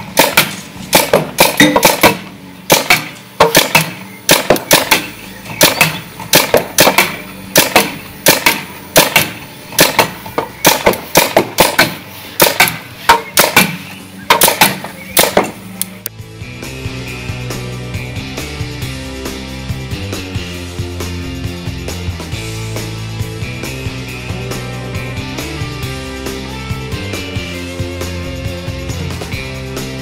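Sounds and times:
paintball gun firing pops: 0.2s - 16.0s
rock music: 14.9s - 30.0s.

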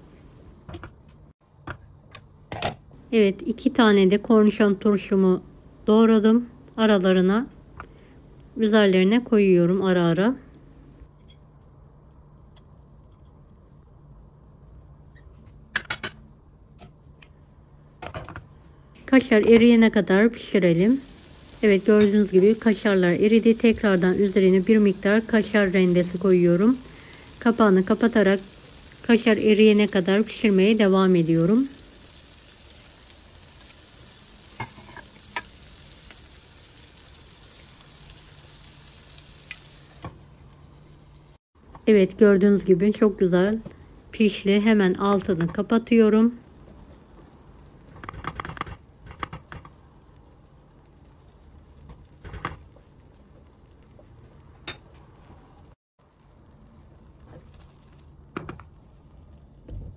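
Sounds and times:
faint sizzle in a pan: 18.6s - 41.4s, 49.0s - 59.9s.

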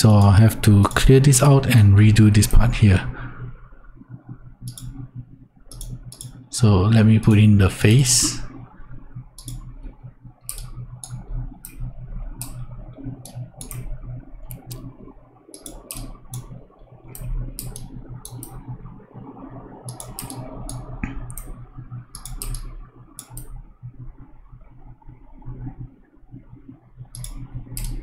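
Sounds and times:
low hum: 0.0s - 28.0s
computer mouse clicking: 0.1s - 1.2s, 4.6s - 5.1s, 5.7s - 6.5s, 9.3s - 19.0s, 19.8s - 23.6s, 26.4s - 28.0s.

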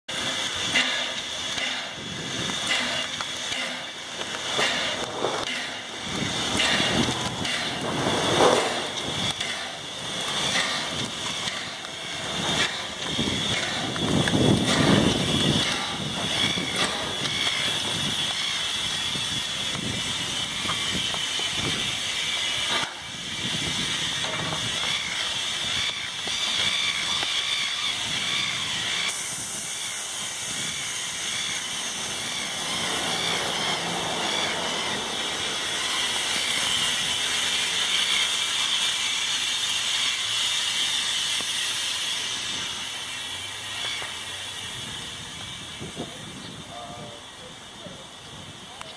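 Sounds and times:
steam locomotive hissing: 0.1s - 48.9s.

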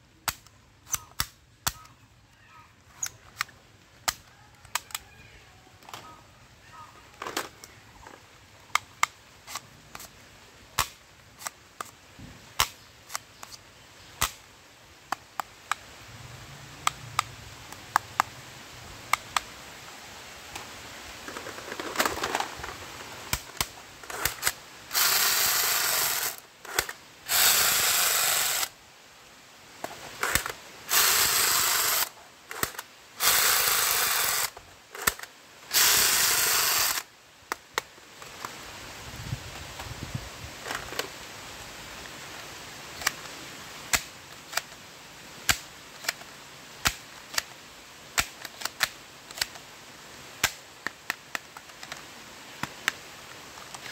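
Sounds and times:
plastic toy guns clicking: 3.0s - 5.0s, 23.3s - 28.7s, 30.2s - 37.1s, 45.5s - 47.5s, 48.2s - 49.6s
toy gun firing bursts: 24.1s - 28.7s, 30.3s - 37.1s.

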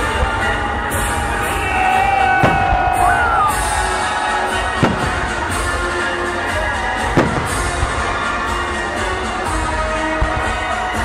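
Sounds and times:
music playing: 0.0s - 11.0s
firework bang: 2.4s - 3.6s, 4.6s - 5.8s, 7.0s - 8.3s.

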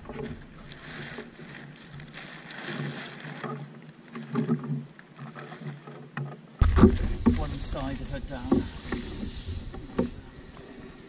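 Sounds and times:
sailcloth rustling and crumpling: 0.0s - 5.8s.

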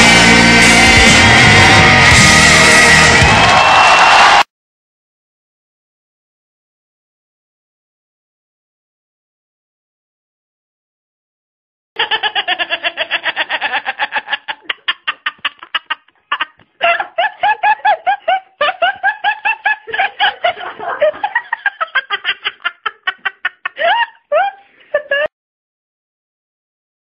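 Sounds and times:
high-pitched laughter: 12.0s - 25.3s.

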